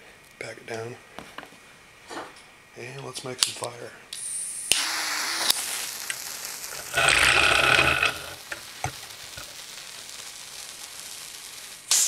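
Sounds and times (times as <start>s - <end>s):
torch lighter hissing: 4.1s - 12.0s
fuse sputtering: 4.7s - 12.0s.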